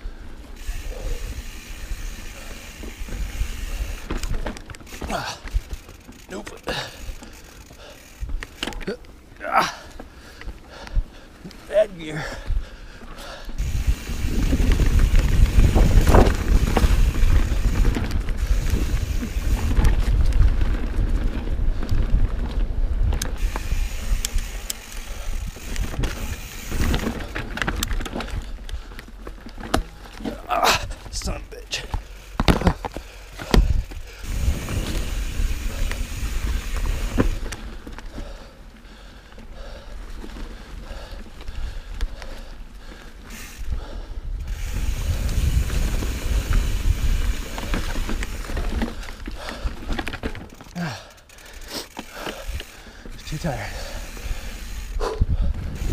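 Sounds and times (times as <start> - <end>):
bike rattling over bumps: 0.0 - 55.9
tyres rumbling on dirt trail: 0.0 - 55.9
wind buffeting microphone: 13.5 - 28.9, 33.4 - 37.7, 43.6 - 49.9, 53.3 - 55.9
bike knocking over bumps: 29.1 - 31.2, 31.8 - 38.2.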